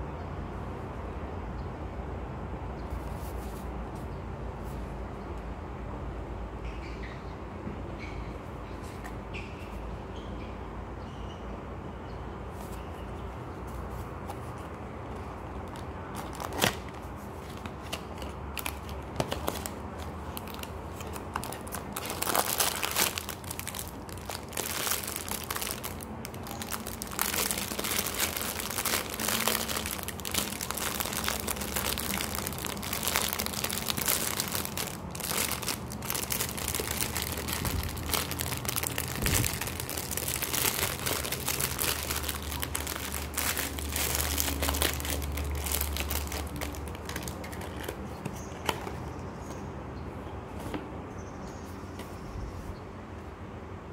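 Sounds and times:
plastic bag crinkling: 15.6s - 48.0s.

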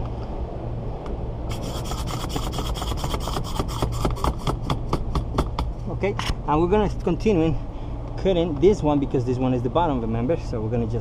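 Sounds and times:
wire rasping through adhesive: 1.5s - 4.9s.

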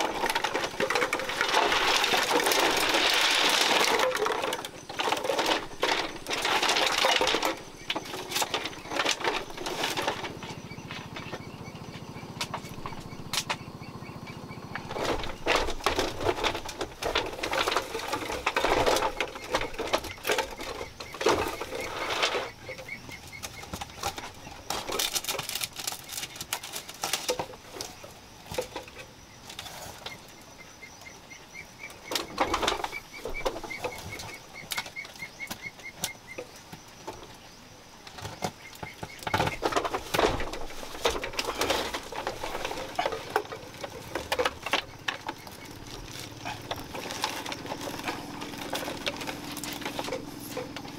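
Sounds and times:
fishing net rustling and crackling: 0.0s - 10.6s, 23.4s - 28.8s, 39.2s - 50.9s.

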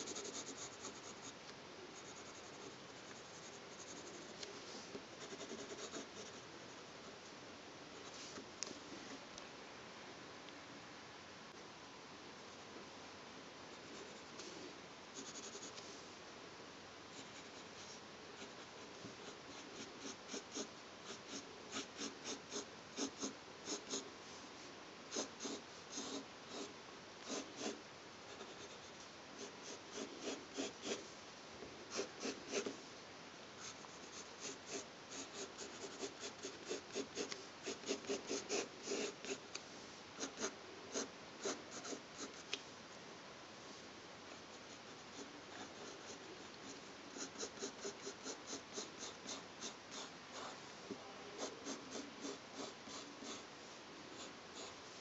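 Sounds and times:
pencil scratching on paper: 0.0s - 1.4s, 2.0s - 4.3s, 5.2s - 6.8s, 15.2s - 15.8s, 17.2s - 24.1s, 25.1s - 31.0s, 31.9s - 32.8s, 33.6s - 39.4s, 40.2s - 42.5s, 44.5s - 50.6s, 51.4s - 53.5s, 54.1s - 54.8s
faint steady hiss: 0.0s - 55.0s.

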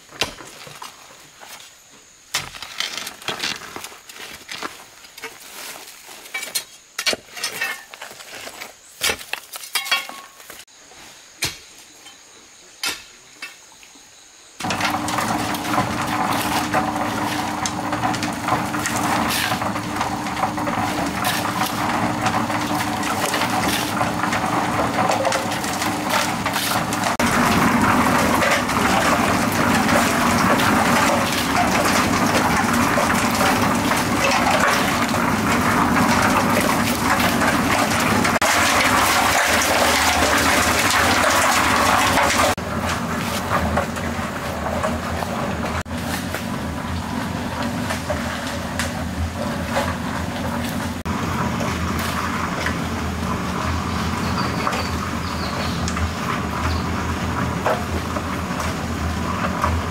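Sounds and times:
water gushing: 14.6s - 59.9s.

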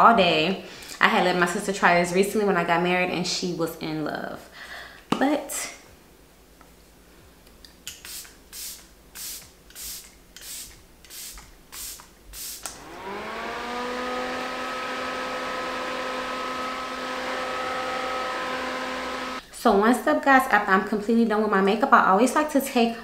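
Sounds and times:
spray bottle hissing: 8.0s - 12.8s
handheld fan whirring: 12.4s - 19.4s.

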